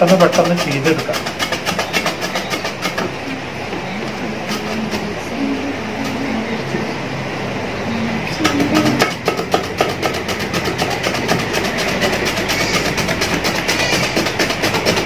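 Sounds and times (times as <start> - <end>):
potato scraping on grater: 0.0 - 3.0, 8.8 - 15.0.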